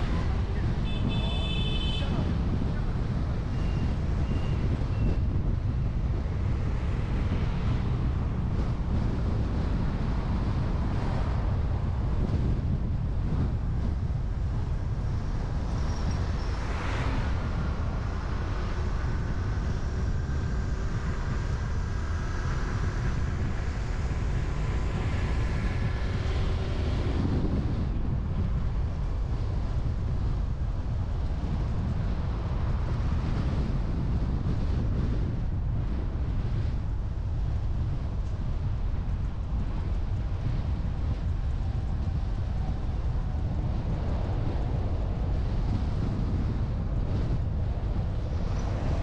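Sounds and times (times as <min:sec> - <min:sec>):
light traffic noise: 0:00.0 - 0:49.0
passing vehicle: 0:00.0 - 0:49.0
wind rumbling on microphone: 0:00.0 - 0:49.0.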